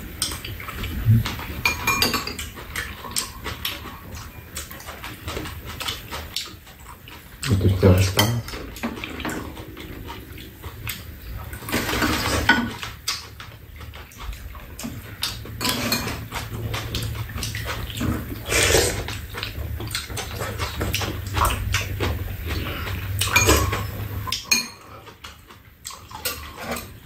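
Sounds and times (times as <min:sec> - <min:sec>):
chewing: 0:00.0 - 0:27.0
spoons clicking against bowls: 0:01.6 - 0:04.9, 0:23.2 - 0:25.0
slurping soup: 0:02.4 - 0:25.2.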